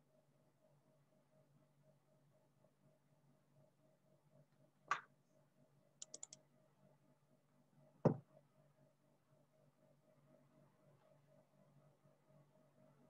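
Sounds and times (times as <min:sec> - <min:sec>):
computer keyboard and mouse clicks: 0:06.0 - 0:06.4.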